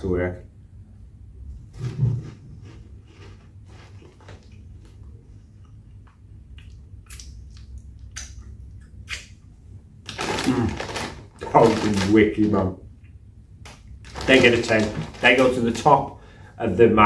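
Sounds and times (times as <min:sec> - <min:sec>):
chewing cheese curls: 0:02.6 - 0:09.4, 0:10.1 - 0:12.2
foil crisp packet crinkling: 0:10.1 - 0:12.6, 0:14.0 - 0:16.2.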